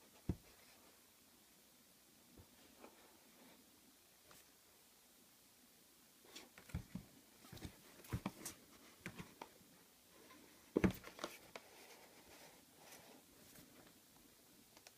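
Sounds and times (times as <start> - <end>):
hands handling cardboard box: 6.5 - 9.5, 10.7 - 14.0.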